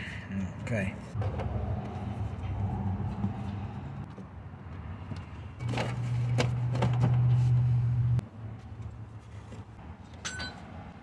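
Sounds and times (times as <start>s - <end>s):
metallic clink: 10.2s - 10.7s.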